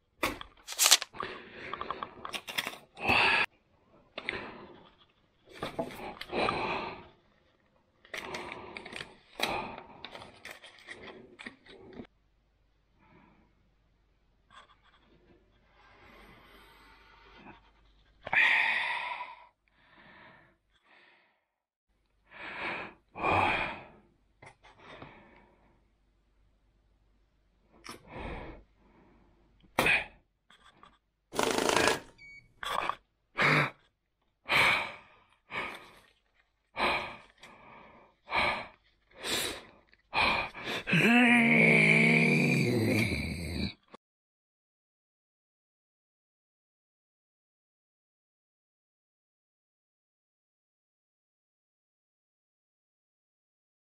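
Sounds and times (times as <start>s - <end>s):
banknotes crinkling between fingers: 0.6s - 1.2s
person huffing and exhaling: 3.0s - 3.5s, 36.8s - 43.6s.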